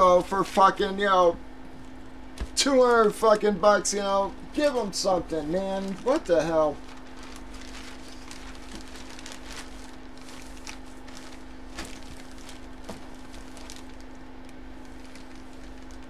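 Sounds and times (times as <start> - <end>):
low electrical hum: 0.0 - 16.0
packaging clicks and rustles: 5.9 - 16.0.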